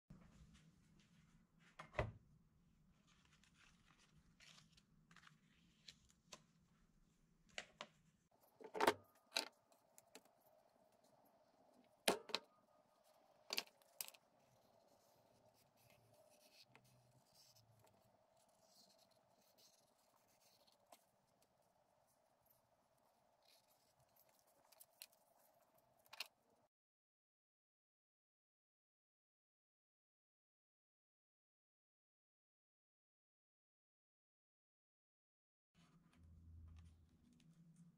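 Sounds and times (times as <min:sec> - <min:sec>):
paper rustling: 0:02.9 - 0:12.0, 0:12.9 - 0:26.4.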